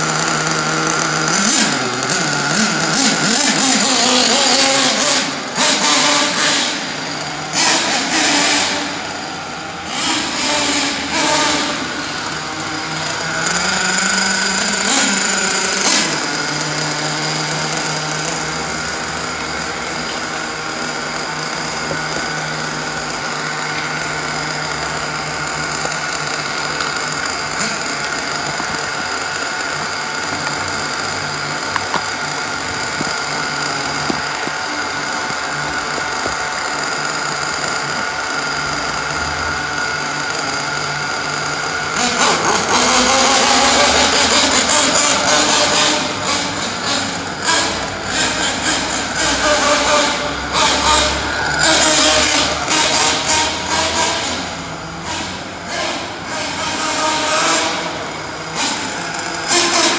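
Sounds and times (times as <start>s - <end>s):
small glow engine idling: 0.0s - 59.9s.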